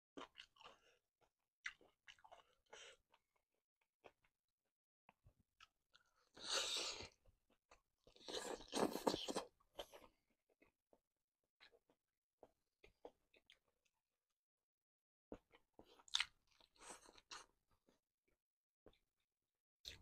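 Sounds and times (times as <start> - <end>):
close-miked biting and chewing: 0.2 - 3.4, 5.6 - 10.7, 15.4 - 17.6.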